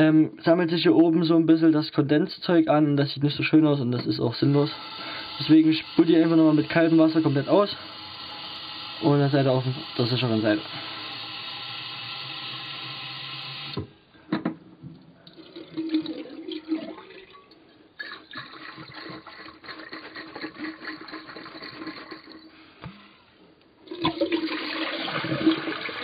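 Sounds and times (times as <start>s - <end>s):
tap water running into glass bowl: 4.0s - 13.8s.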